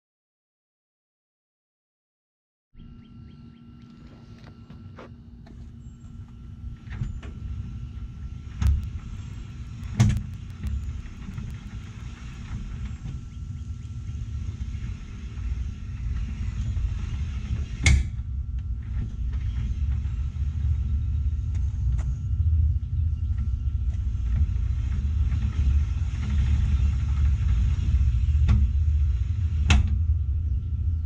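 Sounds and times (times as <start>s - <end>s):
differential low rumble: 2.8s - 31.0s
gears clunking: 8.6s - 13.3s.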